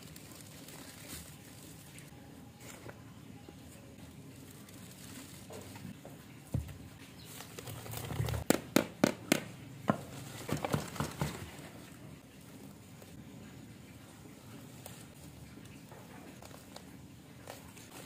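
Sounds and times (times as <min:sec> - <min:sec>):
soil rustling: 0:00.0 - 0:08.5
plastic pot knocked: 0:08.2 - 0:11.5.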